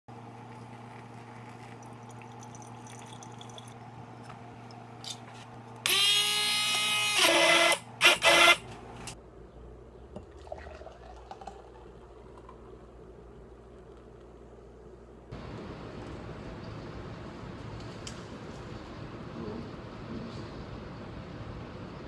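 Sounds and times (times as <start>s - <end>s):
handheld blender motor whining: 5.8s - 8.7s
low steady hum: 8.3s - 22.0s.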